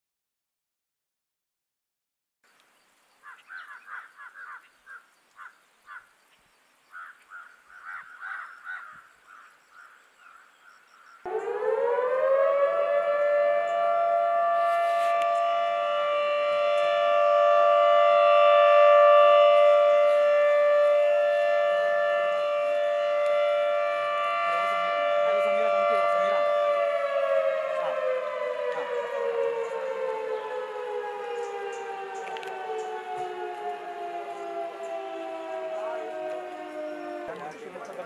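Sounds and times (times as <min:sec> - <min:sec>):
warning siren: 0:11.2 - 0:38.0.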